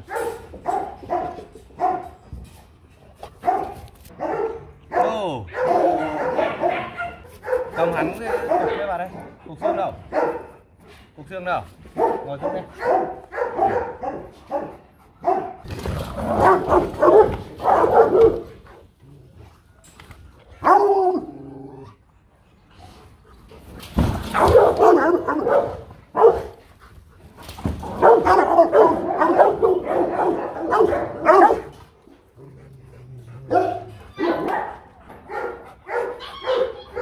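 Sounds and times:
dogs barking: 0:00.0 - 0:02.2, 0:03.4 - 0:10.7, 0:12.0 - 0:18.8, 0:20.6 - 0:21.4, 0:24.3 - 0:26.6, 0:27.8 - 0:32.0, 0:33.0 - 0:37.0.

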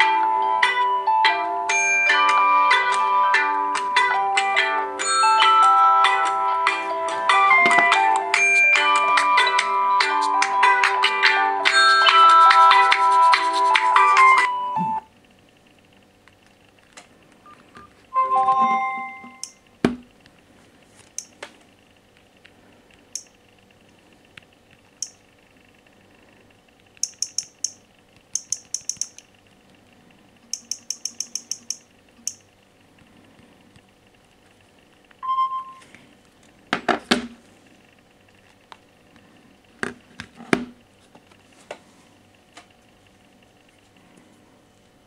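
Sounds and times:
touchscreen tapping clicks: 0:27.0 - 0:29.2, 0:30.5 - 0:32.4
short phone beep: 0:35.2 - 0:35.8.

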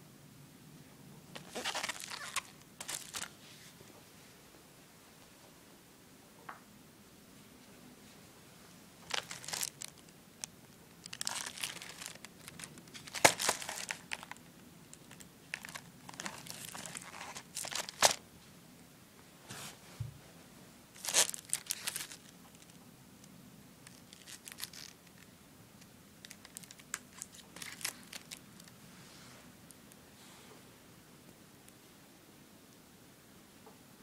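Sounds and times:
plastic and foil wrapping crinkling: 0:01.3 - 0:03.4, 0:09.0 - 0:18.2, 0:21.0 - 0:22.8, 0:23.8 - 0:25.3, 0:26.2 - 0:28.8.

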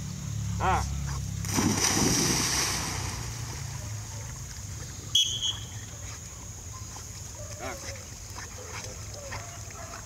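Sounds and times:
dog splashing into water: 0:01.4 - 0:04.5.

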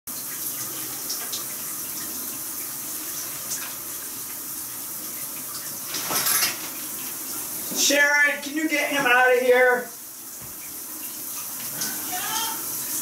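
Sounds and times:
running water hiss: 0:00.1 - 0:13.0.

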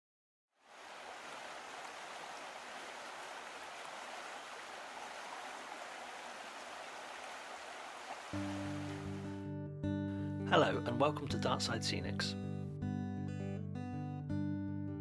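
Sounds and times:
stream water rushing: 0:00.6 - 0:09.4.

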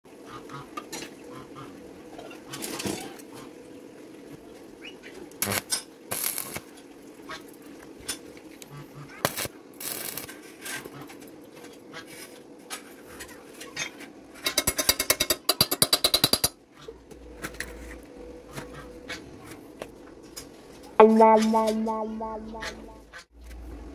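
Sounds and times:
welding arc crackling: 0:05.4 - 0:06.7, 0:09.2 - 0:10.4
faint hum: 0:16.9 - 0:23.9.

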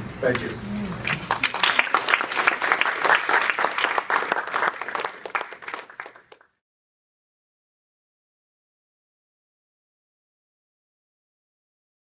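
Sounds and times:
audience applauding: 0:01.0 - 0:06.5.

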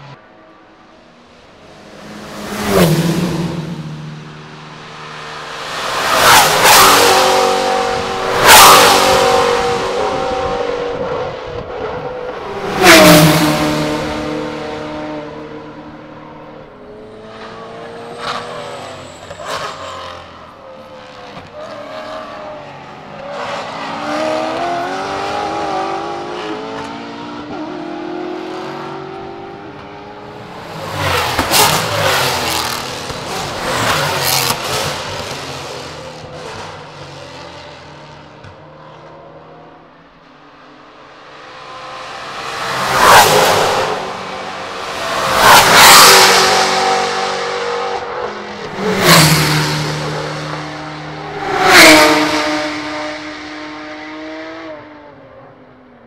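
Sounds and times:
race car passing at speed: 0:00.9 - 0:39.4, 0:40.7 - 0:55.4
car accelerating through gears: 0:02.1 - 0:15.8.

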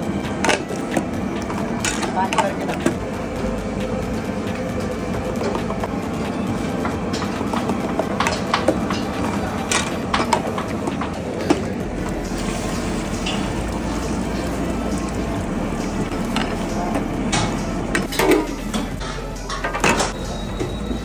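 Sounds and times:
steady rushing noise: 0:00.0 - 0:18.2
metal ladle scraping brass pot: 0:05.4 - 0:20.8.

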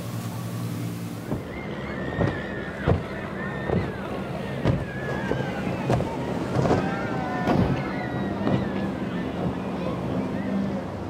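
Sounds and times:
powerboat engines droning: 0:00.0 - 0:11.0
short thumps: 0:04.6 - 0:04.9.

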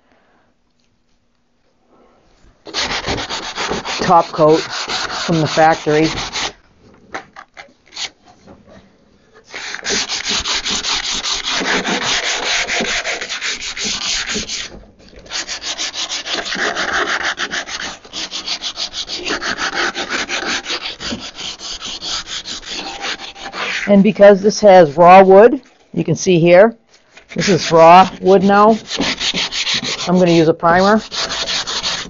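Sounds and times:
sandpaper rubbing on wood: 0:02.7 - 0:06.6, 0:09.5 - 0:14.7, 0:15.3 - 0:23.9, 0:27.2 - 0:32.0.

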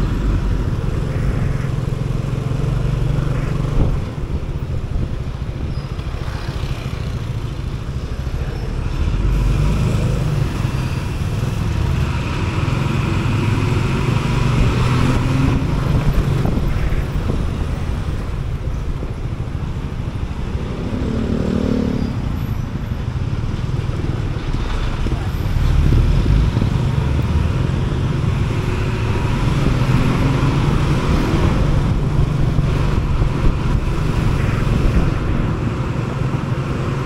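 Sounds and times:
bus engine: 0:00.0 - 0:37.0
road and wind noise: 0:00.0 - 0:37.0.

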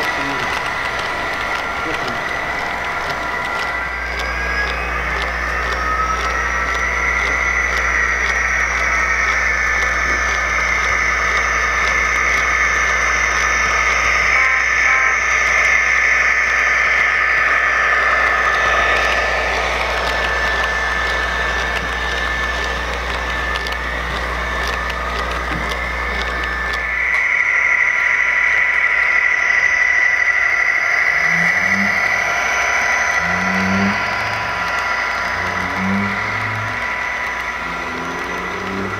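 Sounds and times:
diesel engine running: 0:00.0 - 0:38.9
high whine: 0:00.0 - 0:38.9.

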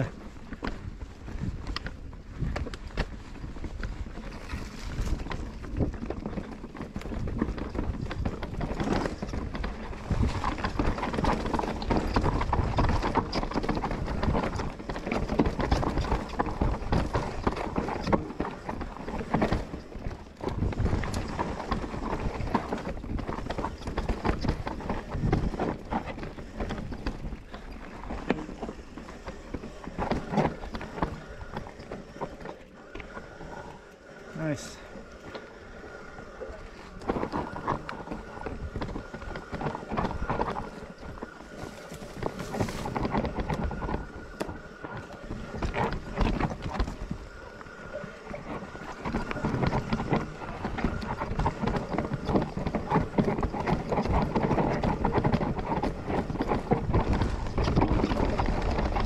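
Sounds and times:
bike knocks and rattles: 0:00.0 - 0:33.0
bike tyres rolling over dirt: 0:00.0 - 0:59.0.

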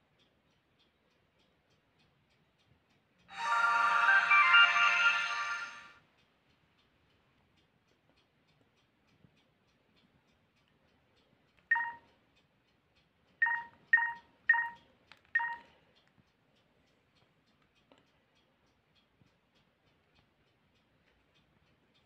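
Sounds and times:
phone keypad beeps: 0:11.7 - 0:12.0, 0:13.4 - 0:14.8, 0:15.4 - 0:15.6.

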